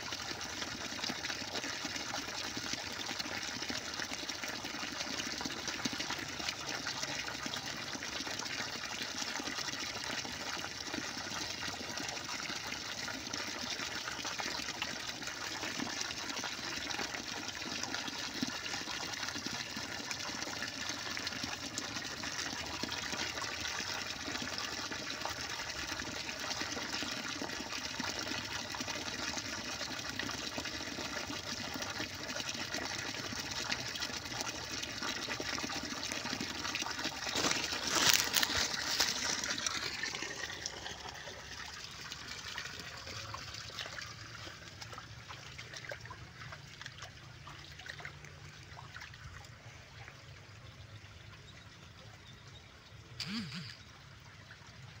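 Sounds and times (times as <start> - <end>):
running water rushing: 31.8 - 50.0.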